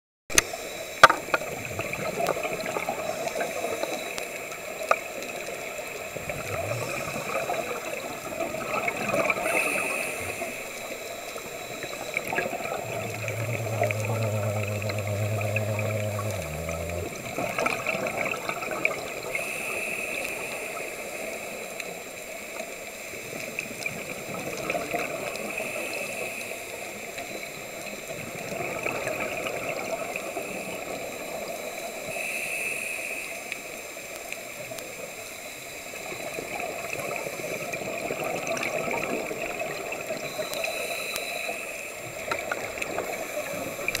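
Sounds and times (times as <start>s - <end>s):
bubbling exhale: 6.2s - 11.0s, 11.9s - 18.8s
hissing regulator inhale: 9.4s - 10.9s, 12.4s - 17.3s
faint clicks: 12.1s - 17.3s.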